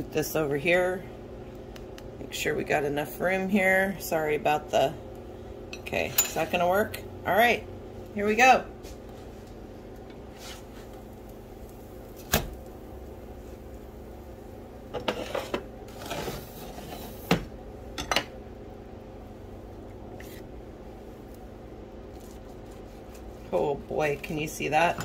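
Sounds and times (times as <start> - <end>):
spatula scraping in skillet: 10.3 - 11.0, 14.9 - 17.3.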